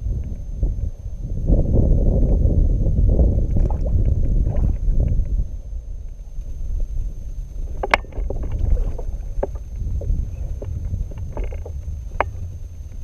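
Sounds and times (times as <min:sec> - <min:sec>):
wind and water rumble: 0:00.0 - 0:13.0.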